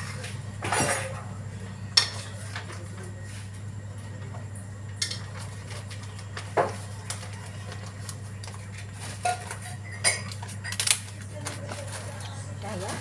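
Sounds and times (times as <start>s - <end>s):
metal pots and utensils clattering: 0.0s - 1.3s, 5.0s - 5.9s, 8.7s - 13.0s
steady low hum: 0.0s - 13.0s.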